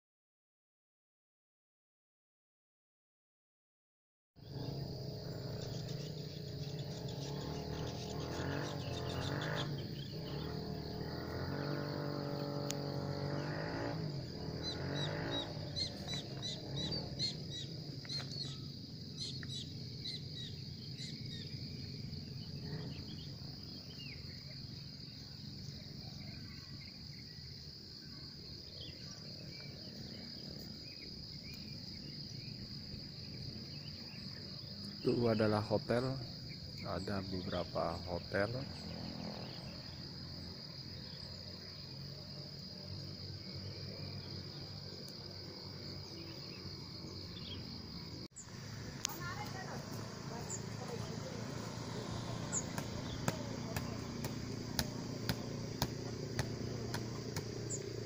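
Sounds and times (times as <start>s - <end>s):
high-pitched insect drone: 4.4s - 58.0s
insect chirps: 4.4s - 58.0s.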